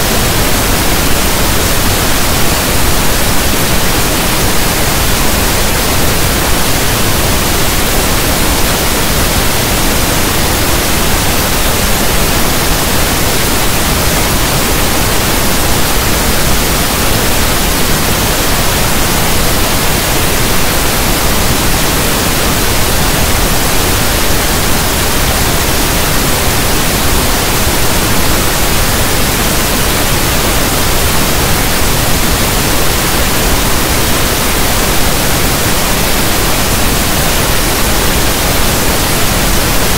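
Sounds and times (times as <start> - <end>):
pink noise hiss: 0.0 - 39.9.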